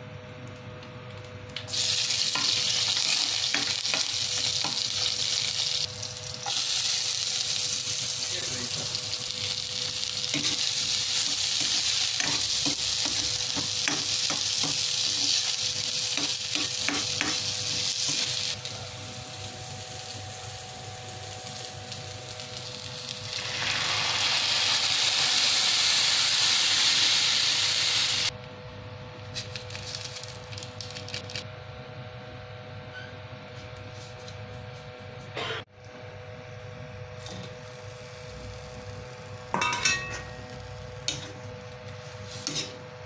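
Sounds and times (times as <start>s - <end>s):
vegetables sizzling in hot oil: 1.6s - 28.3s, 37.2s - 41.3s.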